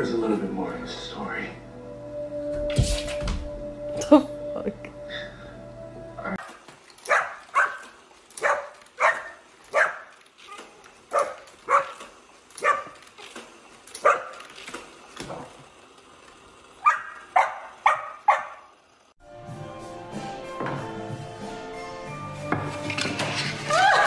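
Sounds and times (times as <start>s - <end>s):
dog barking: 7.0s - 13.0s, 14.0s - 14.4s, 16.8s - 18.7s.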